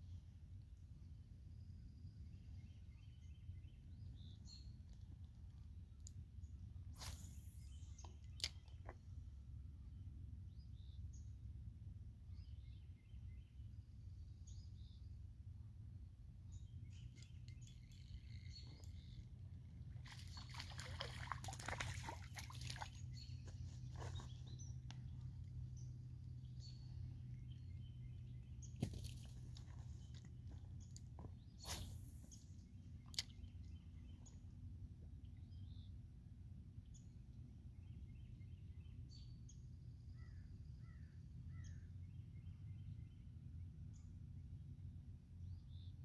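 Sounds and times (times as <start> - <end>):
faint bird chirps: 7.0 - 8.9, 16.5 - 25.8.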